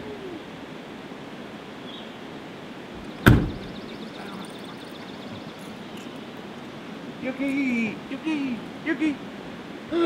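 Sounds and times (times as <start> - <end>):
background noise: 0.0 - 10.0
van door slamming: 3.2 - 3.8.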